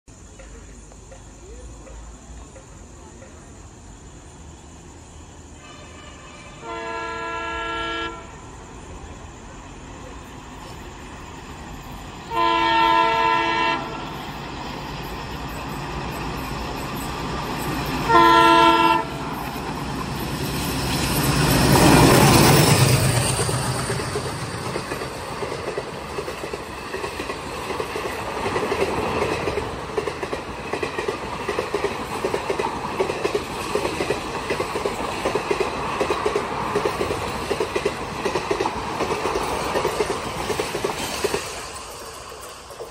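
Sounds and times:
train wheels clickety-clack: 0.1 - 3.9, 10.1 - 42.9
diesel locomotives passing: 0.1 - 42.9
train horn blast: 5.6 - 8.5, 12.3 - 14.2, 18.0 - 19.3.

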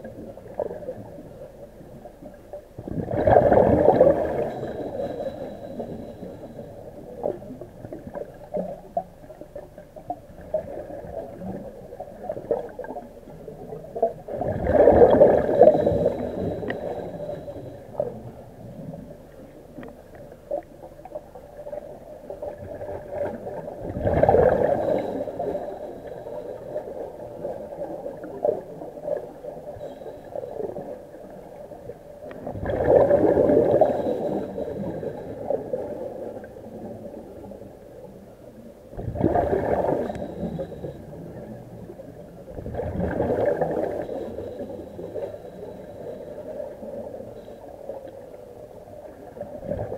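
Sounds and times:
underwater air bubbling: 0.0 - 49.9
underwater rumble: 0.0 - 49.9
faint clicks: 15.1 - 23.6, 39.6 - 41.8.

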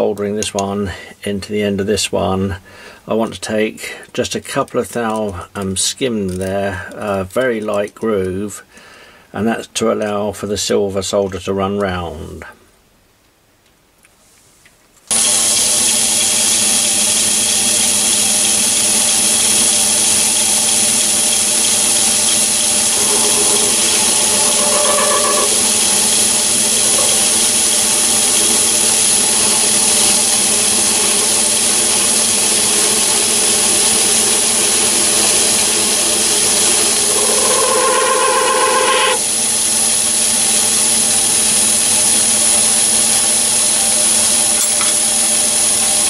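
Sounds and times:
lathe cutting whine: 15.1 - 46.0
lathe hum: 15.1 - 46.0.

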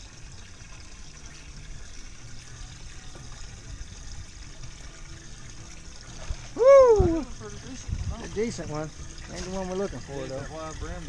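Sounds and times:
water trickling: 0.0 - 11.0.

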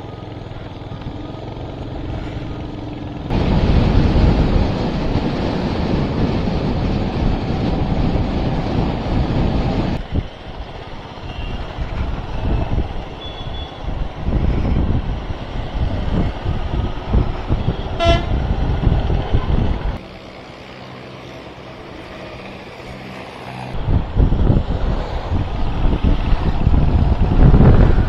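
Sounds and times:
road and traffic noise: 0.0 - 28.0
wind rushing over microphone: 3.2 - 20.0, 23.7 - 28.0.

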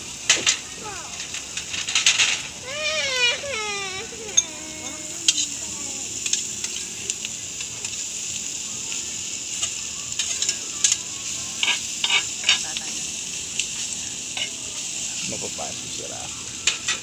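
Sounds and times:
meat sizzling on hot plate: 0.0 - 17.0
metal scraping and clinking: 1.2 - 2.6, 11.6 - 12.8.

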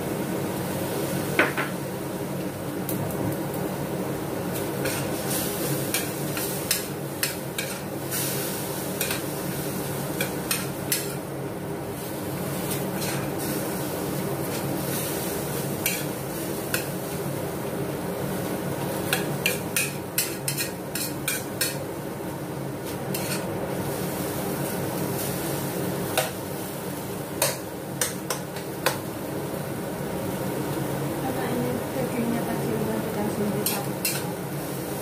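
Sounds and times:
metal ladle scraping wok: 23.1 - 23.5.

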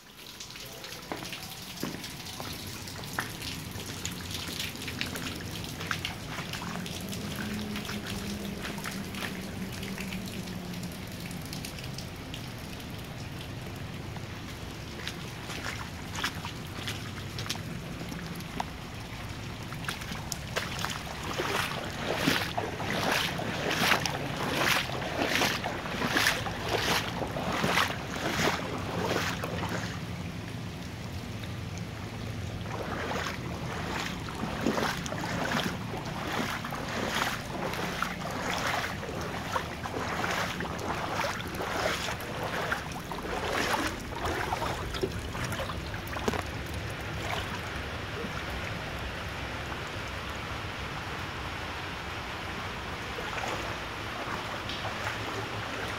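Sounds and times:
footsteps splashing in water: 0.3 - 48.7, 52.9 - 55.9.

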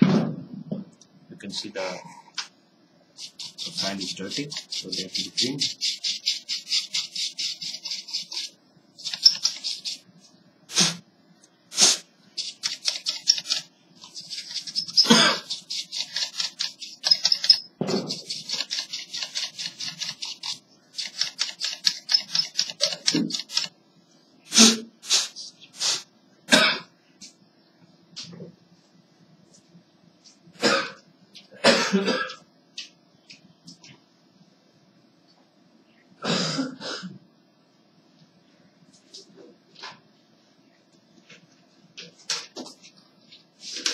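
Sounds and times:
brush scrubbing laptop fan: 3.2 - 10.0, 11.8 - 23.7.

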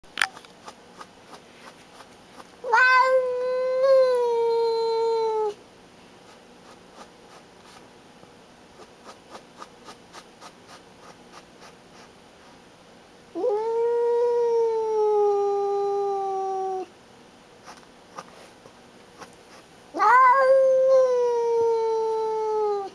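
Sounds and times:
cat yowling: 2.6 - 5.6, 13.4 - 16.9, 20.0 - 22.9.

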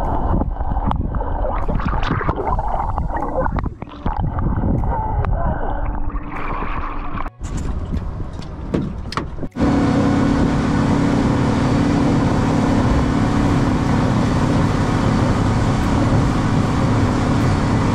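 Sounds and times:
vehicle engine running: 7.6 - 17.9.

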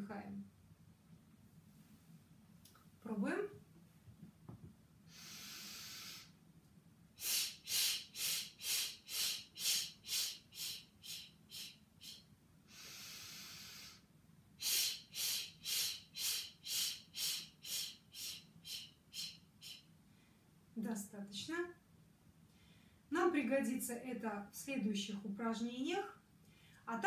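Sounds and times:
short breath puffs through lips: 5.1 - 6.4, 7.2 - 14.0
woman inhaling through nose: 5.1 - 6.4, 7.2 - 19.8.

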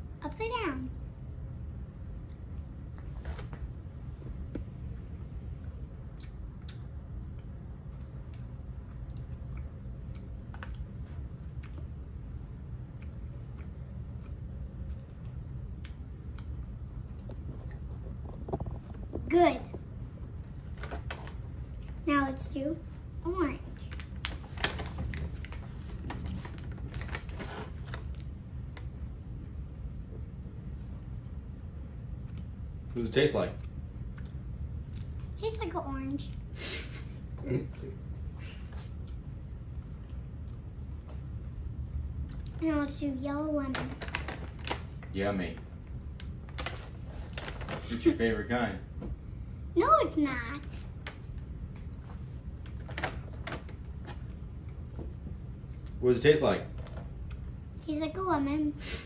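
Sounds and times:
low background hum: 0.0 - 59.0
child chewing gummy candy: 5.6 - 19.3
plastic bag crinkling: 23.6 - 28.2, 43.7 - 45.2, 46.2 - 48.2.

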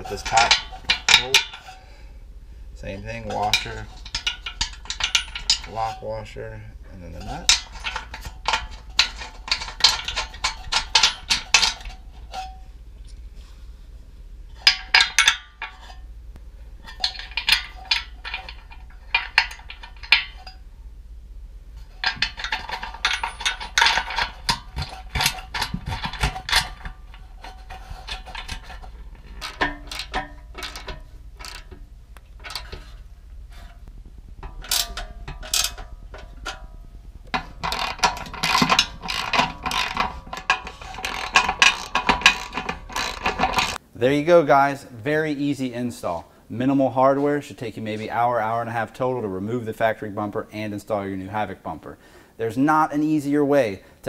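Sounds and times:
socket ratchet clicking: 37.3 - 43.8.

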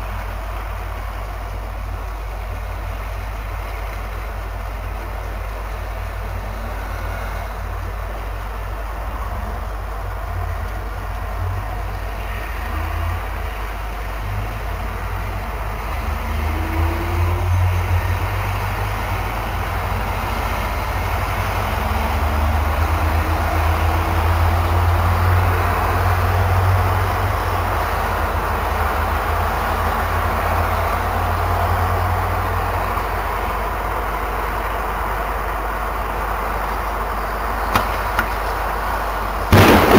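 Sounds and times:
low traffic rumble: 0.0 - 39.9
cars driving past: 6.0 - 33.2, 36.8 - 39.9.

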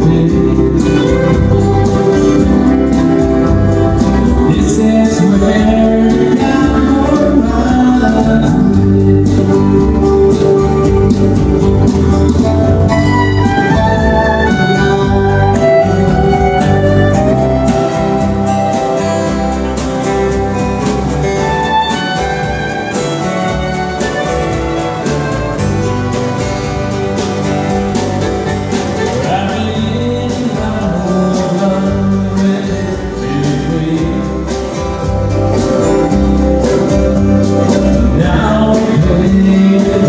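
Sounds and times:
man singing: 0.0 - 10.6, 29.0 - 35.2, 37.5 - 40.0
strummed acoustic guitars: 0.0 - 40.0
fiddle playing: 10.1 - 29.6.

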